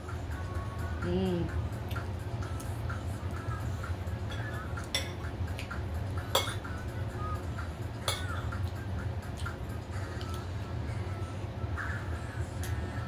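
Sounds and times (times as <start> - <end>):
low steady hum: 0.0 - 13.0
cutlery clinking on plates: 4.3 - 5.3, 6.3 - 6.8, 8.0 - 8.5.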